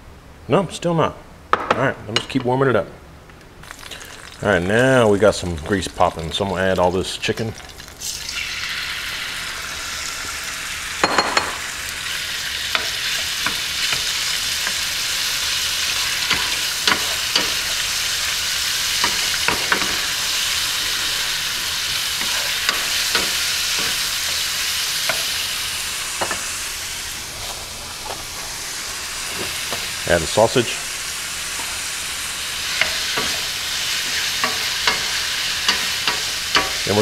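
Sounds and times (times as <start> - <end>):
chicken sizzling in oil: 3.6 - 37.0
spoon tapping pan: 16.2 - 17.8, 19.0 - 20.1, 21.9 - 24.4, 32.7 - 36.8.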